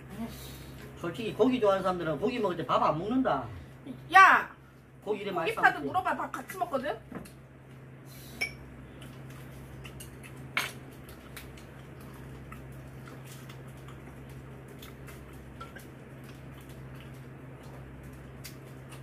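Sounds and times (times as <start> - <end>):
steady low hum: 0.0 - 19.0
wet chewing: 9.0 - 19.0.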